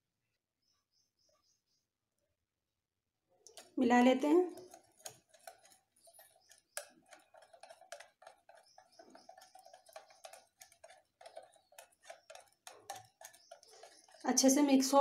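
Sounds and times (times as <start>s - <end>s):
whisk ticking against glass bowl: 3.5s - 15.0s.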